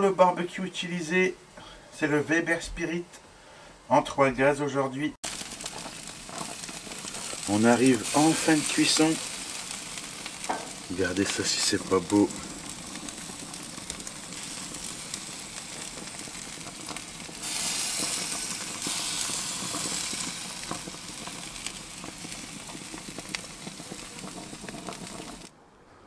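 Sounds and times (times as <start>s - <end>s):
meat sizzling on a grill: 5.2s - 25.5s.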